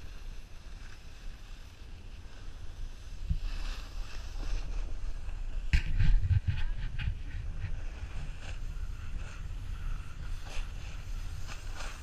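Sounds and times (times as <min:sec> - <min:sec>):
skis sliding over snow: 0:00.0 - 0:12.0
wind buffeting microphone: 0:02.6 - 0:12.0.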